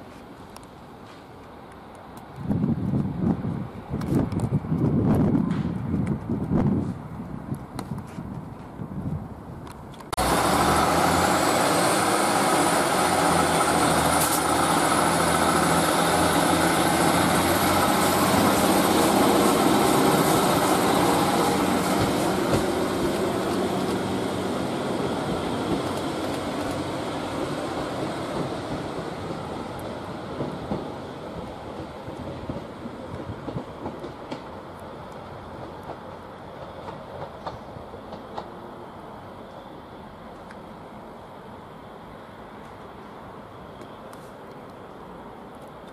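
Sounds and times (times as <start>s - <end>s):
train wheels on rails: 0.0s - 45.9s
diesel train engine: 9.4s - 45.9s.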